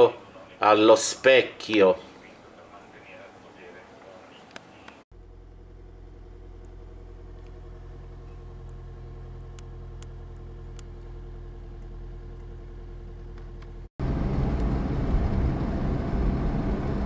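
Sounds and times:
car engine idling: 0:05.1 - 0:17.0
car driving road noise: 0:05.2 - 0:17.0.

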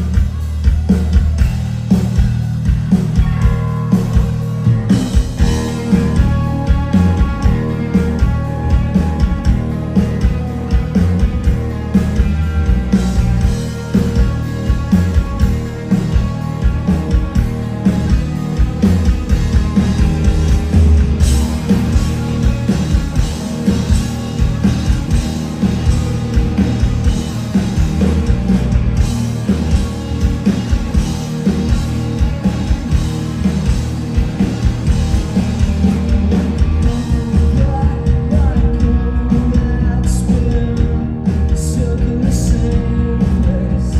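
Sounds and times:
bass guitar: 0:00.0 - 0:43.9
drums: 0:00.0 - 0:43.9
electric guitars: 0:00.0 - 0:43.9
person singing: 0:36.8 - 0:43.9.

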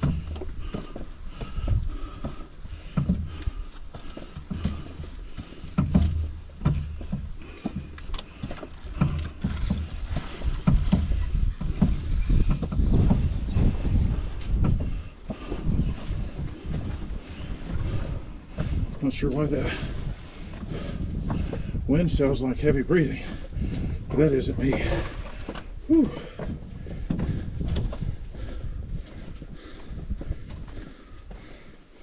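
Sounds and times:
canoe knocks: 0:00.0 - 0:21.7
footfalls: 0:00.0 - 0:32.0
wind buffeting microphone: 0:00.0 - 0:32.0.

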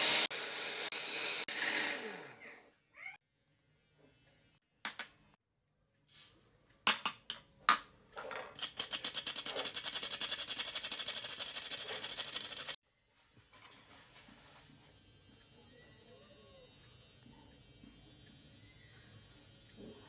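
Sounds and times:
metal flour sifter rattling: 0:08.6 - 0:12.8.

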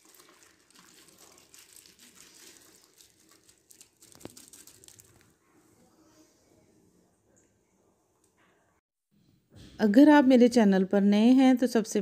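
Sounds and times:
wet squishing of raw chicken: 0:00.0 - 0:05.3
plastic crinkling: 0:00.0 - 0:05.4.

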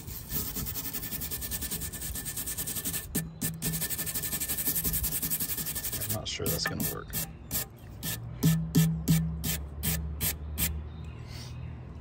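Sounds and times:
wire brush scrubbing ceramic: 0:00.0 - 0:08.2.

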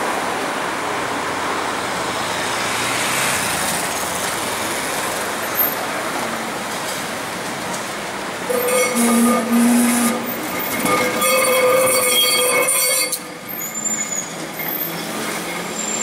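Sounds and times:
city traffic noise: 0:00.0 - 0:16.0
tram rumbling on rails: 0:03.4 - 0:16.0.

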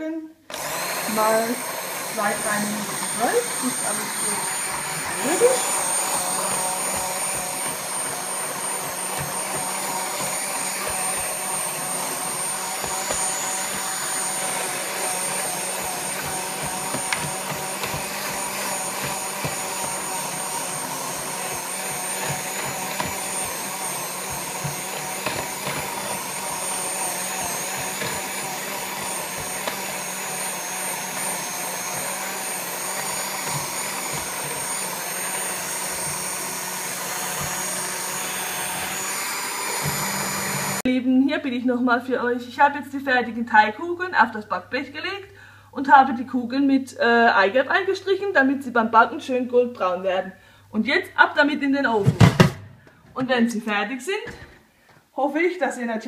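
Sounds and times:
hand mixer motor whine: 0:00.5 - 0:40.9.

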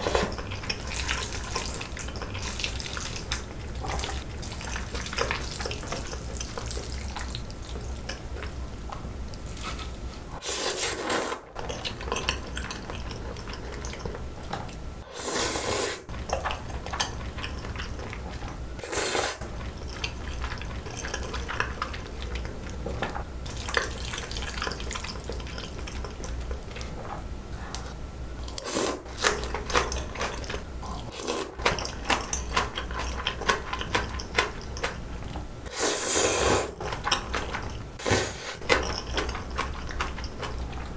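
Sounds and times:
chewing: 0:11.6 - 0:14.8, 0:16.2 - 0:18.6, 0:19.4 - 0:35.4, 0:38.6 - 0:40.9.

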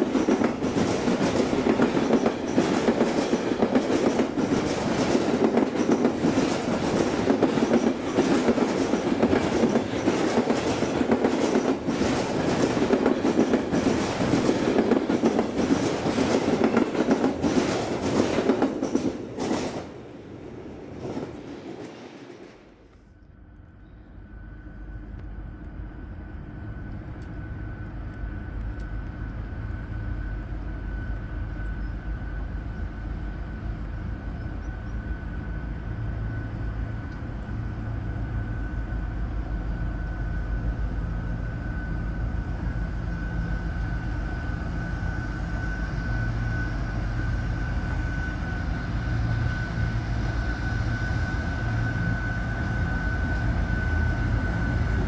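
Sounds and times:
diesel locomotive engine rumble: 0:00.0 - 0:55.0.

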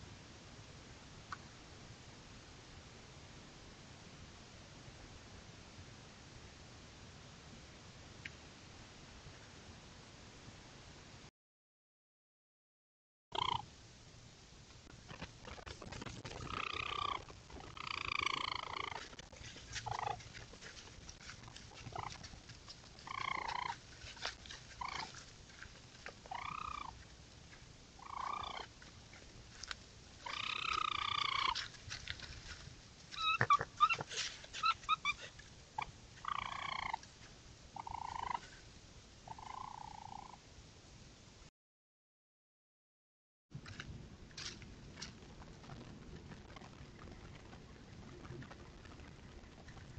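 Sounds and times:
raccoons calling: 0:13.4 - 0:13.7, 0:16.4 - 0:20.4, 0:21.6 - 0:22.3, 0:23.0 - 0:25.2, 0:26.3 - 0:27.0, 0:28.0 - 0:28.8, 0:30.2 - 0:31.7, 0:33.1 - 0:37.0, 0:37.8 - 0:38.4
clicks and rustles: 0:14.7 - 0:26.3, 0:28.8 - 0:35.6, 0:43.6 - 0:49.9.

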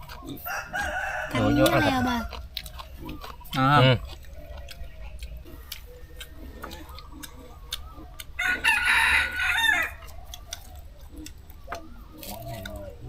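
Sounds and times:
rooster crowing: 0:00.4 - 0:02.3, 0:07.8 - 0:10.2.

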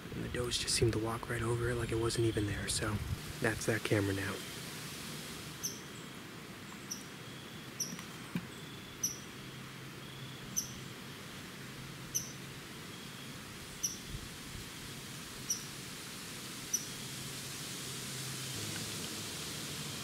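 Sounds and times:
faint background hiss: 0:00.0 - 0:20.0
small animal chirps: 0:05.6 - 0:05.9.

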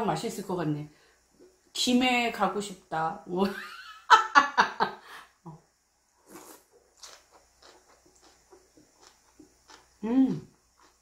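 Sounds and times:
noodle slurping: 0:06.2 - 0:10.0
quiet chewing: 0:06.2 - 0:11.0.

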